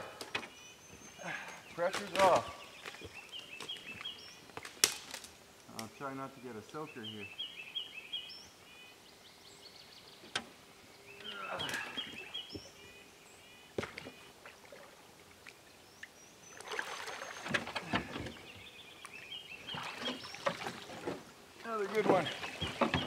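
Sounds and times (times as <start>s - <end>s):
bird chirping: 0.0s - 4.6s, 5.4s - 14.8s, 15.6s - 23.0s
water splashing and pouring: 16.6s - 18.1s, 19.7s - 23.0s
sharp knocks: 22.6s - 23.0s.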